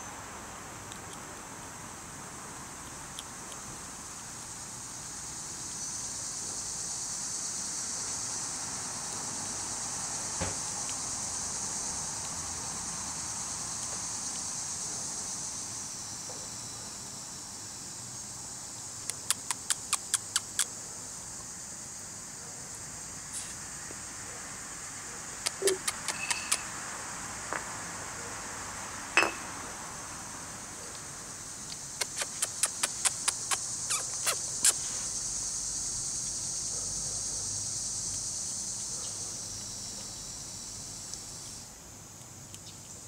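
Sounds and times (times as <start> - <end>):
high-pitched insect chorus: 1.8 - 43.0
sharp clicks: 31.7 - 34.8.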